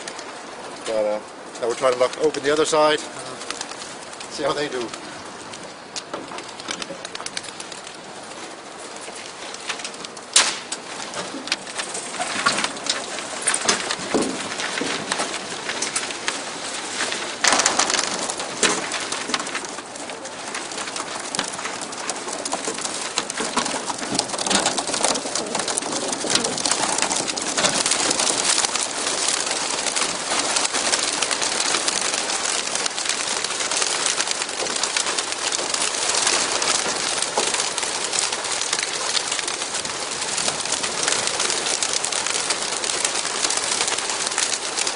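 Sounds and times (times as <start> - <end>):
pigeon wings fluttering: 0.0 - 44.9
loud knocks: 13.7 - 15.3.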